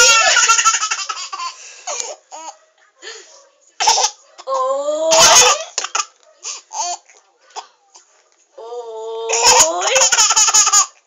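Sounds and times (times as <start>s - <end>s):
baby laughing: 0.0s - 2.6s, 9.3s - 11.0s.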